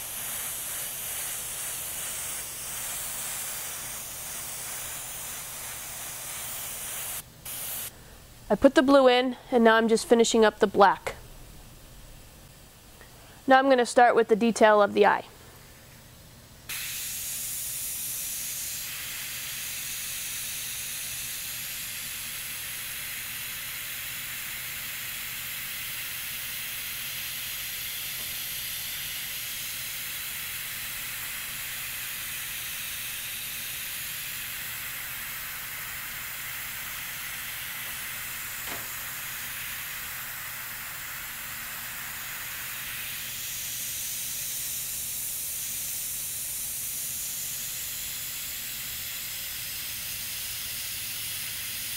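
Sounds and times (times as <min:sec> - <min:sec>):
airbrush hissing: 0:00.0 - 0:08.0, 0:16.7 - 0:51.9
low steady hum: 0:00.0 - 0:16.7.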